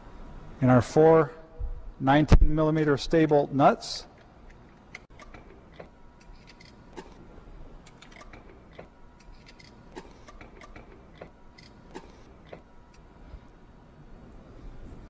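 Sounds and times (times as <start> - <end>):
metallic clicks of nuts and washers: 4.1 - 7.2, 7.8 - 13.1.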